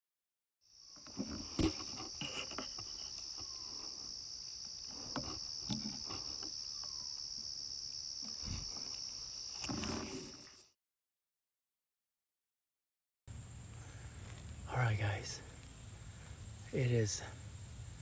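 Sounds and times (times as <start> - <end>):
high-pitched insect chorus: 0.6 - 10.6, 13.3 - 18.0
knocks and rustles: 1.0 - 3.6, 4.9 - 6.6, 9.6 - 10.5.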